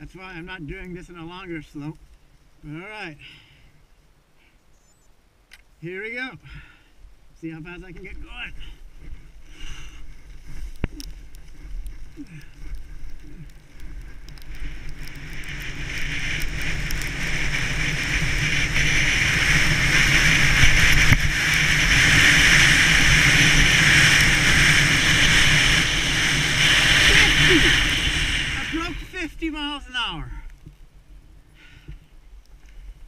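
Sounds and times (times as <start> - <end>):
wind rushing over microphone: 7.4 - 29.7
skis running on snow: 7.9 - 30.0.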